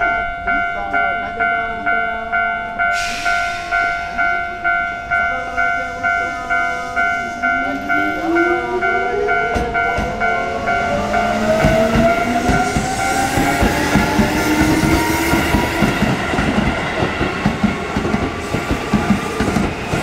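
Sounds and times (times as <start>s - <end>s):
level crossing bell dinging: 0.0s - 14.1s
hiss: 2.9s - 4.2s.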